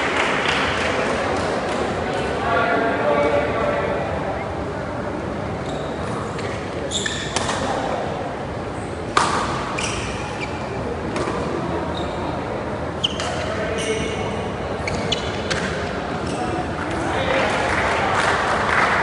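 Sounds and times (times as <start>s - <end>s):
shoes squeaking on floor: 5.6s - 7.5s, 9.7s - 10.8s, 11.9s - 16.6s
rackets hitting shuttlecock: 7.3s - 7.8s, 9.1s - 10.2s.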